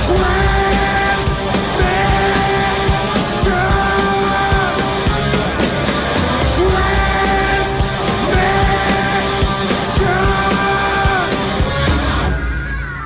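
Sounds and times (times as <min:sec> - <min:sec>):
drums and cymbal hits: 0:00.0 - 0:13.0
electric guitar: 0:00.0 - 0:13.0
person singing long notes: 0:06.4 - 0:11.7.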